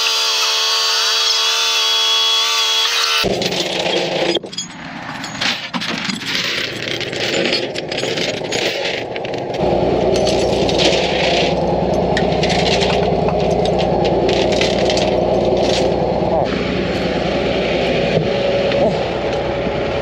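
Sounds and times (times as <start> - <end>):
chains rattling on steel deck: 3.1 - 17.1
low engine hum: 9.5 - 20.0.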